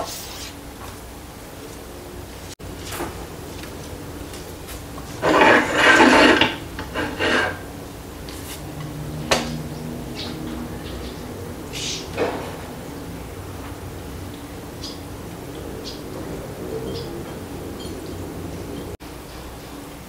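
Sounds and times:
cookware scraping: 0:05.1 - 0:07.7.

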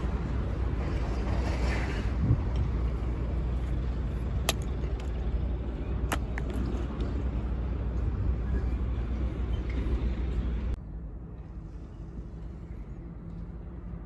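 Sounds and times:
low outdoor rumble: 0:00.0 - 0:14.0
sandals clacking on asphalt: 0:02.5 - 0:08.2.

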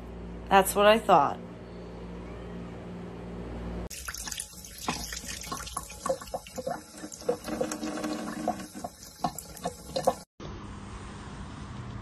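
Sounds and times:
cat lapping water: 0:03.9 - 0:10.3
faucet running into sink: 0:03.9 - 0:10.3.

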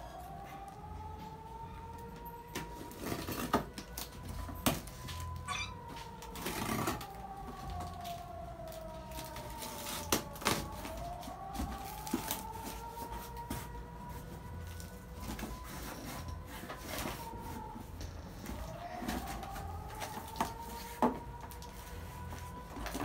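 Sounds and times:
wailing tone: 0:05.1 - 0:13.6.

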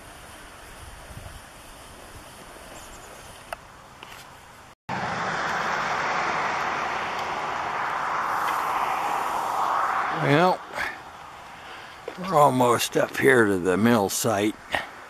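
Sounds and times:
faint hiss: 0:00.0 - 0:04.7, 0:06.3 - 0:15.0
walker wheels rolling on asphalt: 0:11.0 - 0:14.4.

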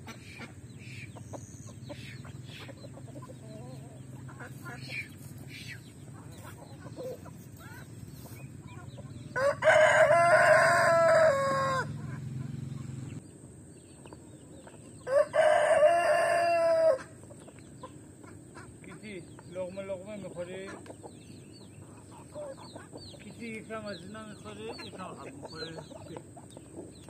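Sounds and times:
hens clucking: 0:00.0 - 0:13.2, 0:13.9 - 0:27.0
rooster crowing: 0:09.3 - 0:12.1, 0:15.0 - 0:17.1.

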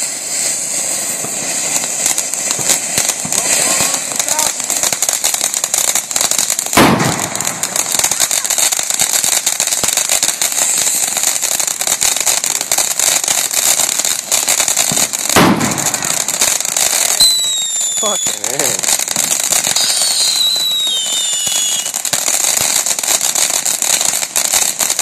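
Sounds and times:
firework fountains crackling: 0:00.0 - 0:25.0
loud firework bangs: 0:00.0 - 0:25.0
short high whistle: 0:17.2 - 0:18.8, 0:19.8 - 0:22.0.

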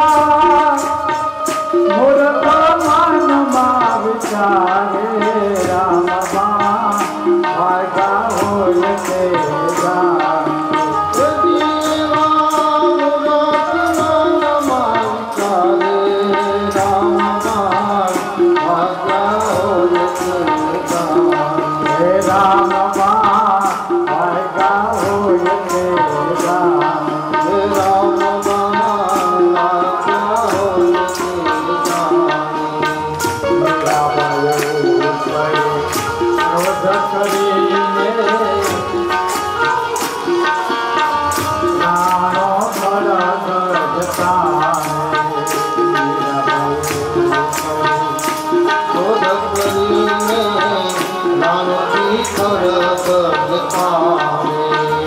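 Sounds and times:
tabla: 0:00.0 - 0:55.0
congregation clapping: 0:33.1 - 0:37.7, 0:44.0 - 0:48.6.

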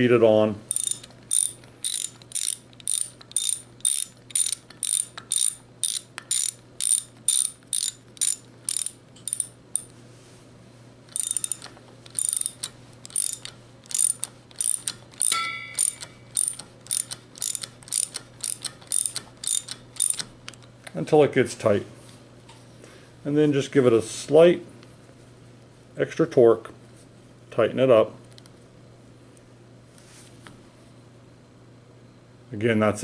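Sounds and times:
socket ratchet clicking: 0:00.7 - 0:09.9, 0:11.1 - 0:20.7
short metallic ring: 0:15.2 - 0:16.6.

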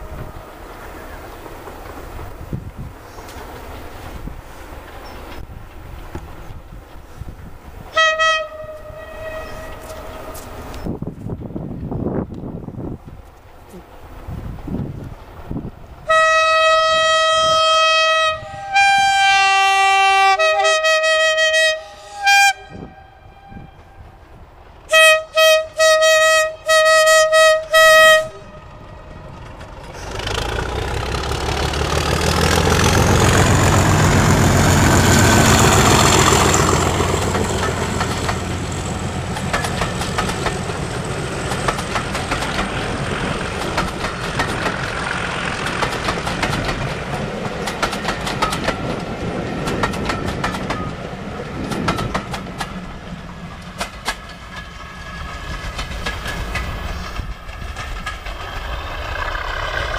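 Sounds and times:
diesel locomotive engine passing: 0:00.0 - 0:59.9
locomotive horn blasts: 0:07.9 - 0:10.6, 0:16.1 - 0:24.0, 0:24.9 - 0:29.2
train wheels clacking over rail joints: 0:29.1 - 0:59.9.

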